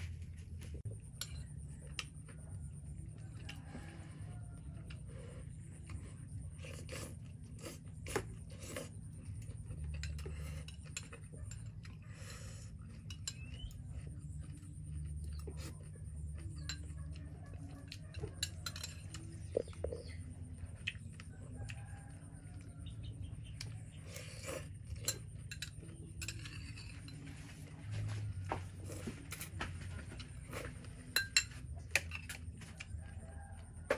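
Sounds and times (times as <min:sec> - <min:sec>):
chewing: 0:00.0 - 0:33.9
metal spoon scraping on plate: 0:06.5 - 0:14.1, 0:18.0 - 0:20.2, 0:24.0 - 0:27.6, 0:30.4 - 0:32.4.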